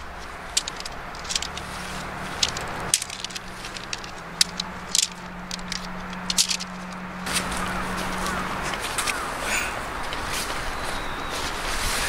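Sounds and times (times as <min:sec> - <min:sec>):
tent fabric rustling: 0:00.0 - 0:05.3, 0:10.0 - 0:12.0
tent poles clicking: 0:00.0 - 0:12.0.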